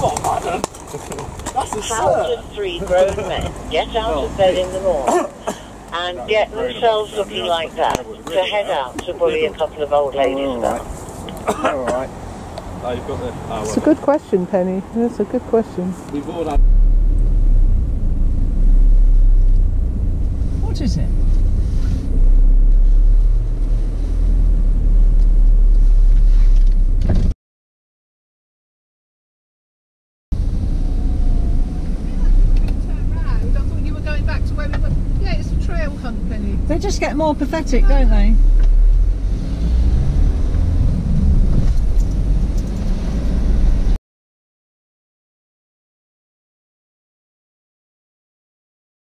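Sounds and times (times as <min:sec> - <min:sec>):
car engine low rumble in cabin: 0:16.1 - 0:27.3, 0:30.3 - 0:44.0.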